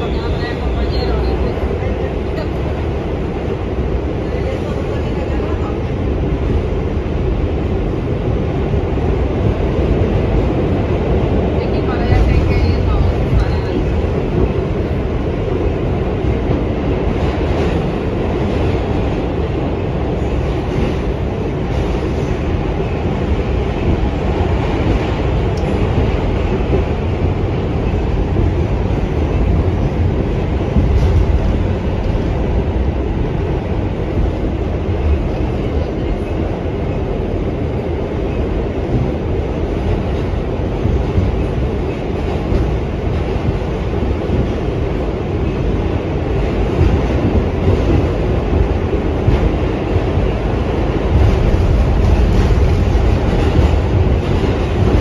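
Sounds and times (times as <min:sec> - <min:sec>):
subway train wheels rumbling on rails: 0:00.0 - 0:55.0.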